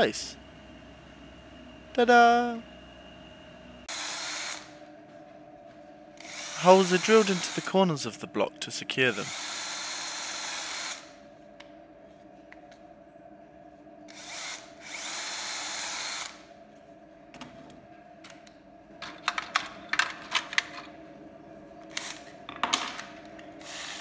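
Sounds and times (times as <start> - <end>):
cordless drill drilling wood: 3.9 - 4.7, 6.2 - 7.7, 9.2 - 11.0.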